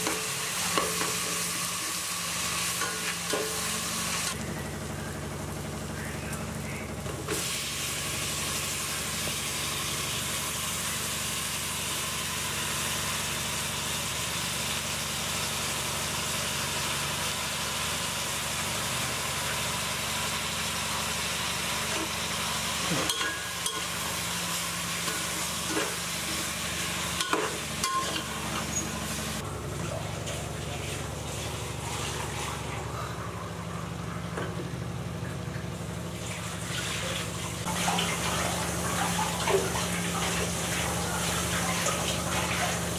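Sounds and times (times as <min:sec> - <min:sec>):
tomatoes sizzling in a pot: 0:00.0 - 0:05.9, 0:07.2 - 0:32.7, 0:35.7 - 0:42.9.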